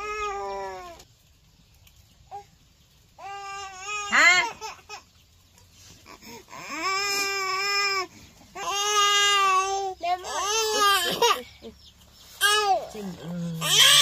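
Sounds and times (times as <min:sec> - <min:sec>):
baby crying and whining: 0:06.2 - 0:11.4.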